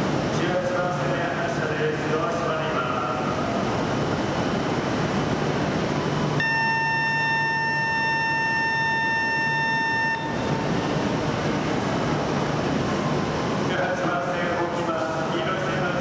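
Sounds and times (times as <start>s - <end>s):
standing train hum: 0.0s - 16.0s
electronic warning tone: 6.4s - 10.6s.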